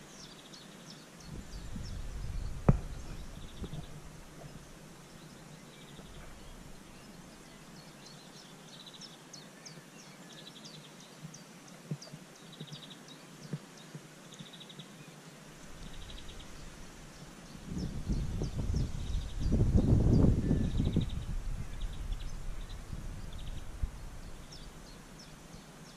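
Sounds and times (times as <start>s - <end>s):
birds chirping: 0.0s - 25.9s
faint background noise: 0.0s - 25.9s.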